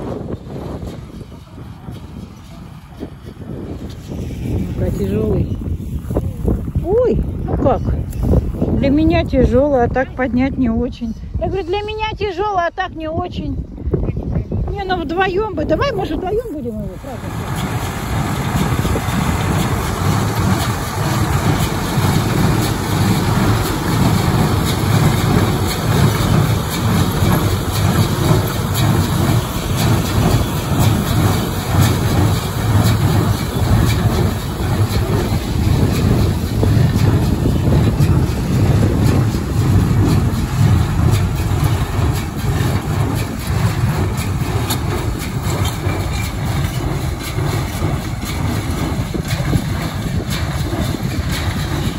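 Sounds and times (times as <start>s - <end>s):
tractor engine running: 0.0s - 10.3s, 14.8s - 51.9s
hay baler knocking: 16.0s - 51.9s.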